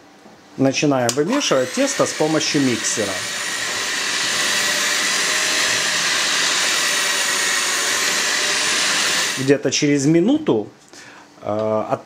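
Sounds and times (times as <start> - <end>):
electric mixer motor whine: 1.1 - 9.6.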